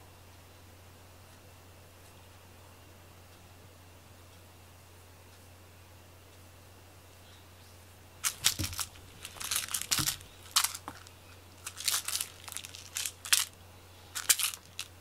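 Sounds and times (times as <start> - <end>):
soft thumps: 8.2 - 11.1
toy crinkling and crunching: 8.2 - 15.0.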